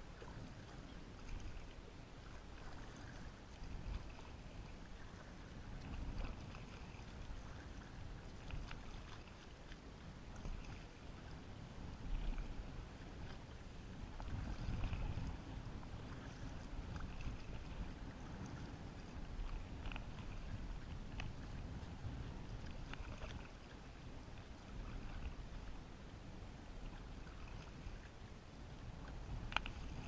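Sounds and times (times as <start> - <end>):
paddle strokes through water: 0.0 - 30.0
water moving along hull: 0.0 - 30.0.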